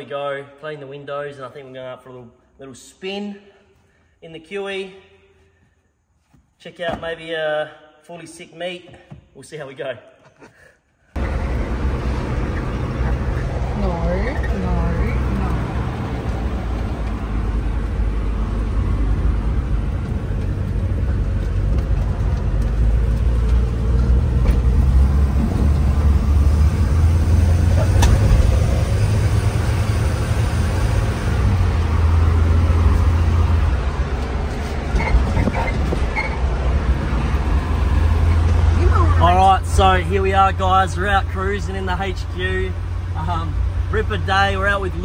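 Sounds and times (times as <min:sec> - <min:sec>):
car interior engine and road rumble: 0:11.1 - 0:45.0.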